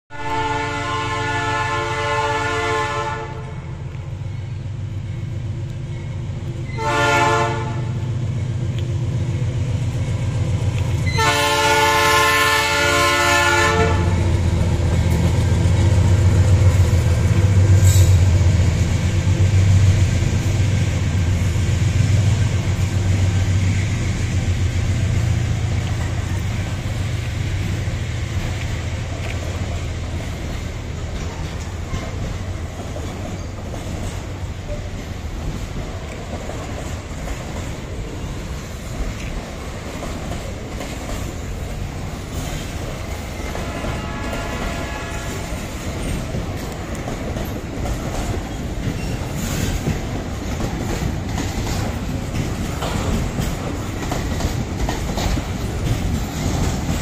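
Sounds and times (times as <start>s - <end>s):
train horn blasts: 0.1s - 3.7s, 6.6s - 8.0s, 11.0s - 14.4s, 43.4s - 46.3s
locomotive engine rumbling: 0.2s - 57.0s
train wagons rolling: 0.3s - 57.0s.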